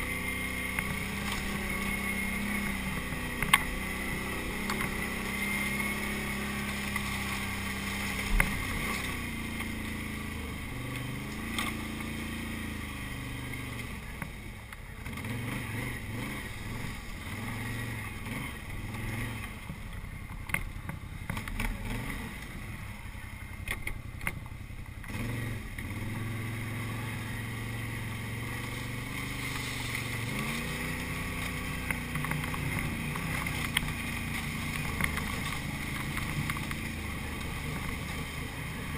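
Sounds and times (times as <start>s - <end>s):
atv engine revving: 0.0s - 38.9s
knocks and thumps on ground and brush: 2.6s - 9.9s, 28.4s - 38.3s.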